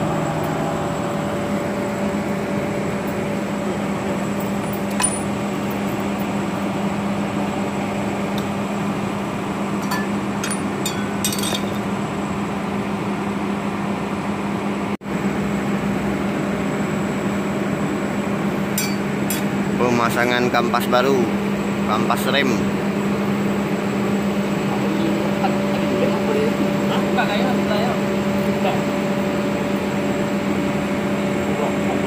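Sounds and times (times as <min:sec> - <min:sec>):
steady machine hum: 0:00.0 - 0:32.0
metal brake plates clinking: 0:09.8 - 0:11.9.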